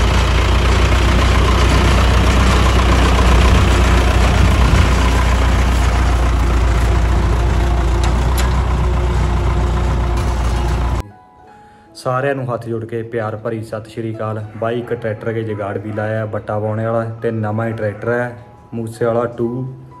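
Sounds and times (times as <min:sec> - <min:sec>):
tractor diesel engine under load: 0:00.0 - 0:11.0.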